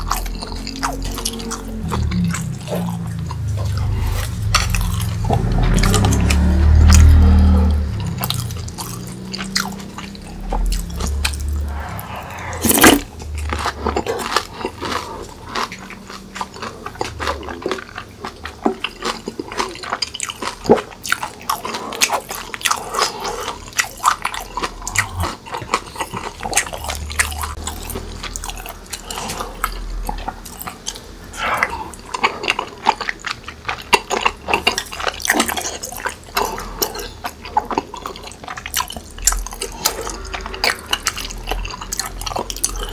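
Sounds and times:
wet chewing and smacking: 0.0 - 11.5, 13.2 - 42.9
motorcycles rumbling outside: 0.0 - 14.6, 39.1 - 42.9.

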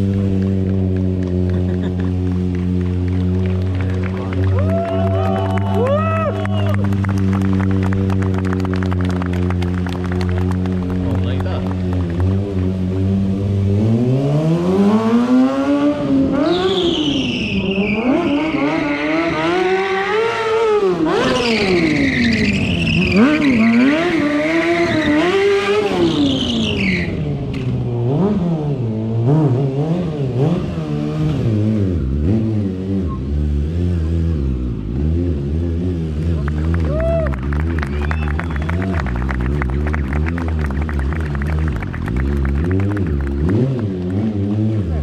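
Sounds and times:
motorcycle engine revving: 0.0 - 45.0
high tyre squeal: 16.4 - 19.9, 21.2 - 27.4.

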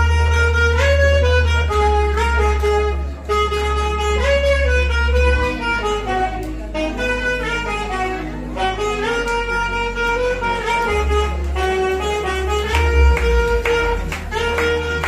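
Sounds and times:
backing track with deep bass: 0.0 - 15.0
saxophone playing a pop melody: 0.0 - 15.0.

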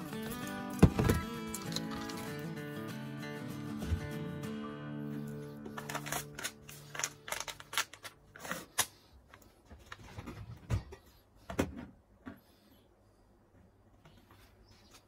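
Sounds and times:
background music: 0.0 - 7.9.

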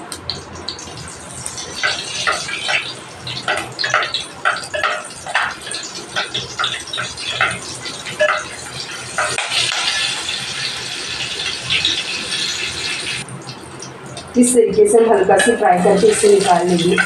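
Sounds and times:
oil sizzling in a pan: 0.4 - 14.3, 15.2 - 17.0
spatula scraping a pan: 1.8 - 11.5.

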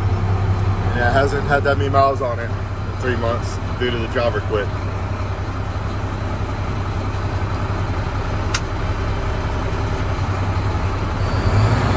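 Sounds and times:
diesel truck engine idling: 0.0 - 11.9.

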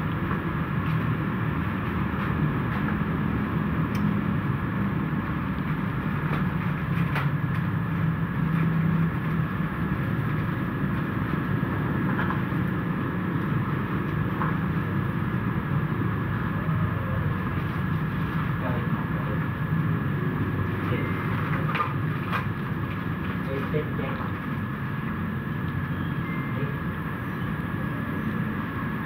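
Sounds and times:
low mechanical hum: 0.0 - 29.0.

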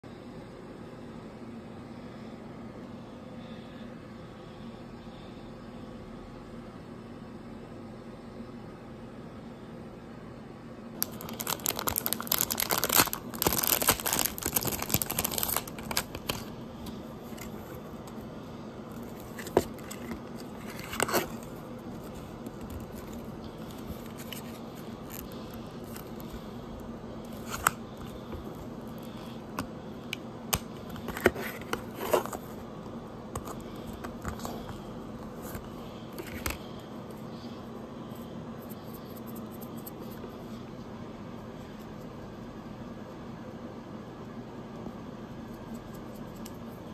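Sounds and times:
plastic packaging crinkling and tearing: 11.0 - 16.6, 19.0 - 26.5, 27.2 - 29.4.

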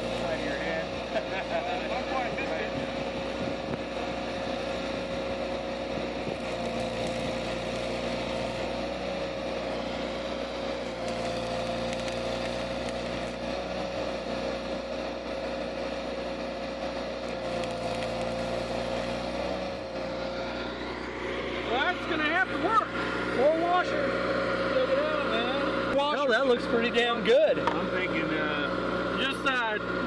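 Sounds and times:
welding arc crackling hiss: 0.0 - 15.0, 17.1 - 20.6
steady engine hum: 0.0 - 30.0.

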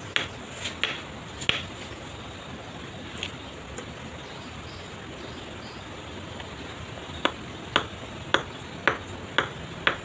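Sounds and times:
tool handle tapping stone: 7.2 - 10.0.

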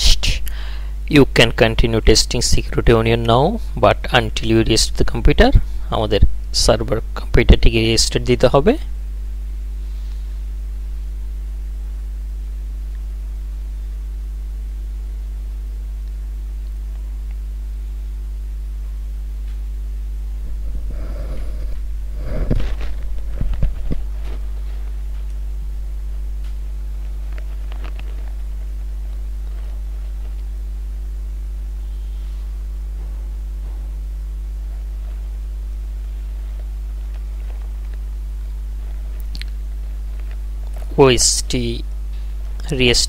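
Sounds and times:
low electrical hum: 0.0 - 43.0
rustling: 20.4 - 31.4, 34.2 - 41.0.

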